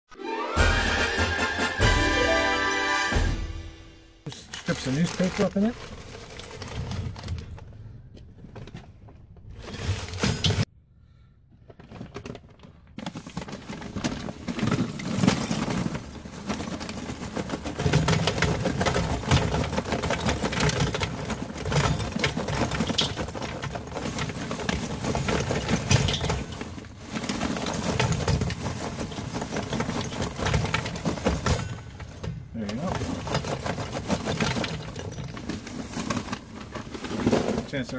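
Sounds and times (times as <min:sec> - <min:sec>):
charcoal clattering into metal: 0:04.3 - 0:07.5, 0:13.0 - 0:37.9.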